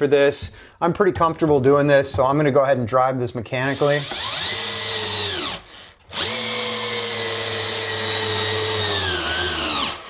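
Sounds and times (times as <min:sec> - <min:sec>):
cordless drill motor whining: 0:04.0 - 0:10.0.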